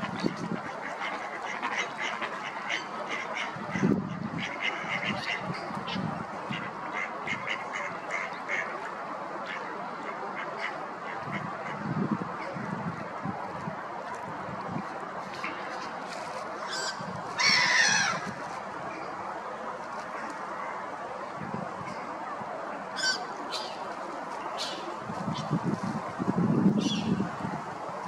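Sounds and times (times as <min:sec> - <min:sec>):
ducks quacking: 0:00.0 - 0:08.8.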